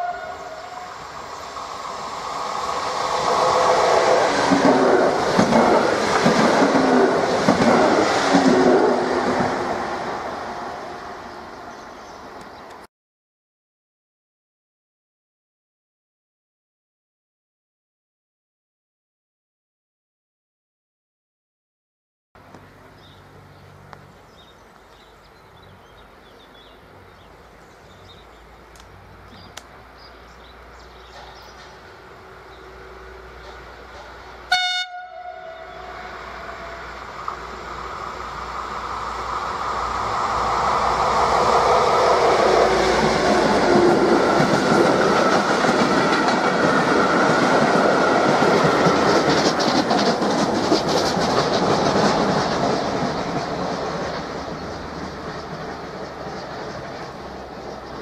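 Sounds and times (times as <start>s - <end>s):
locomotive horn blast: 0.0s - 1.1s, 34.5s - 37.0s
train passing: 0.0s - 12.9s, 22.4s - 58.0s
wheels clicking over rail joints: 4.4s - 8.7s, 43.4s - 58.0s.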